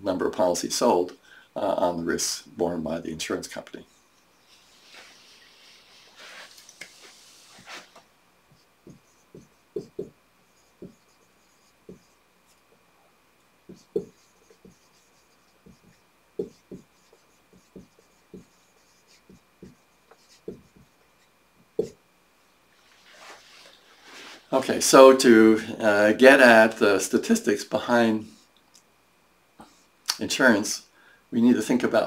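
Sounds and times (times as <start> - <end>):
marker writing on whiteboard: 6.0 - 12.6, 13.7 - 22.0.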